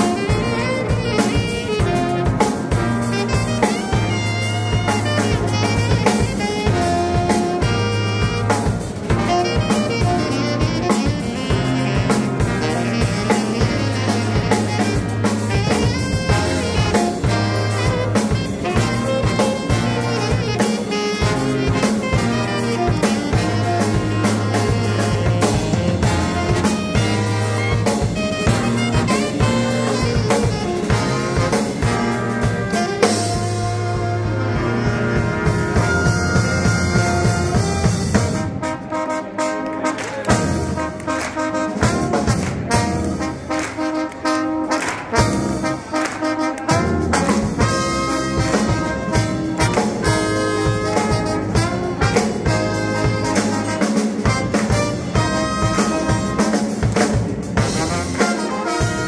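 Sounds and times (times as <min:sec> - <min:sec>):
brass band playing: 0:00.0 - 0:59.0
drum kit: 0:00.0 - 0:59.0
sousaphone bass line: 0:21.3 - 0:38.3.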